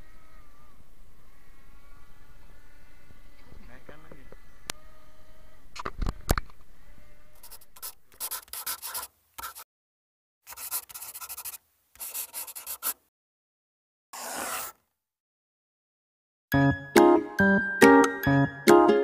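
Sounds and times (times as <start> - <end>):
scratchy rubbing bursts: 7.4 - 9.6, 10.5 - 13.0, 14.2 - 14.8.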